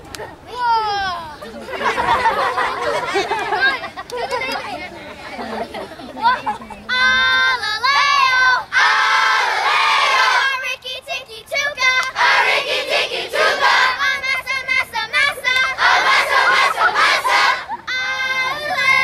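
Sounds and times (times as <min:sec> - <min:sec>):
children chanting a cheer: 0:07.1 - 0:19.0.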